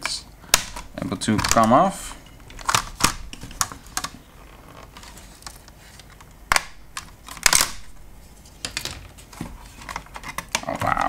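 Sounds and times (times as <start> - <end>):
plastic casing clicks and knocks: 0.6 - 1.8, 2.4 - 4.2, 6.5 - 8.0.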